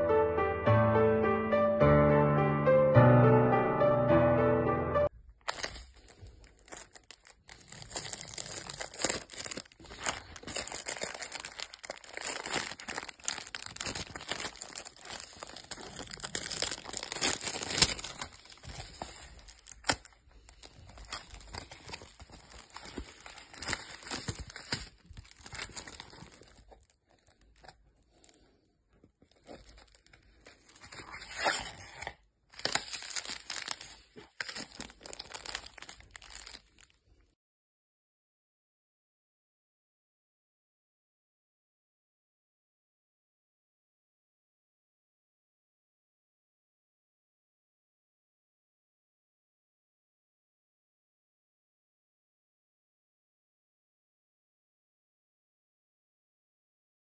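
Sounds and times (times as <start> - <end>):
plastic packaging crinkling: 5.3 - 37.2.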